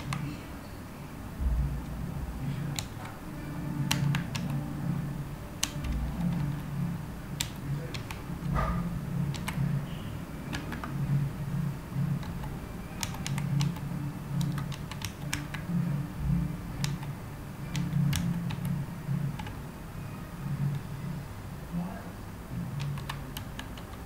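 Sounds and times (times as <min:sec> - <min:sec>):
keyboard typing clicks: 0:00.0 - 0:00.4, 0:02.5 - 0:03.2, 0:03.8 - 0:04.6, 0:05.5 - 0:09.8, 0:10.4 - 0:11.2, 0:12.1 - 0:15.7, 0:16.8 - 0:19.6, 0:22.7 - 0:24.0
low steady hum: 0:00.0 - 0:24.0.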